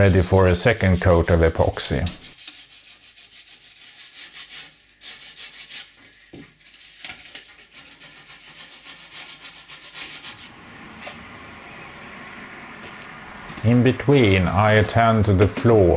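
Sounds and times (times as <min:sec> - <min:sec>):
sandpaper rasping strokes: 0:00.0 - 0:10.5, 0:14.0 - 0:15.2.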